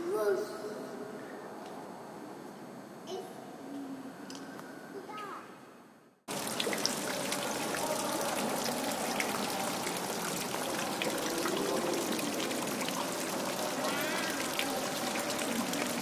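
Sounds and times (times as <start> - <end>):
fountain water splashing: 6.3 - 16.0
faint indistinct voices: 6.4 - 16.0.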